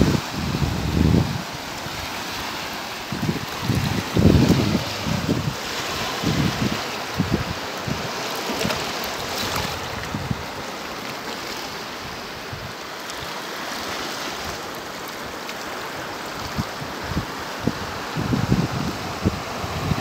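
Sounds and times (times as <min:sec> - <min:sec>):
wind buffeting microphone: 0:00.0 - 0:02.4, 0:03.0 - 0:10.6, 0:16.4 - 0:20.0
sea water washing over rocks: 0:00.0 - 0:20.0
small waves breaking: 0:00.0 - 0:20.0.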